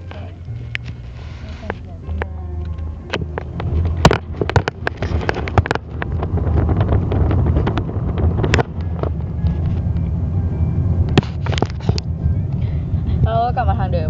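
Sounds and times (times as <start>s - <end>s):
car engine and road rumble: 0.0s - 14.0s.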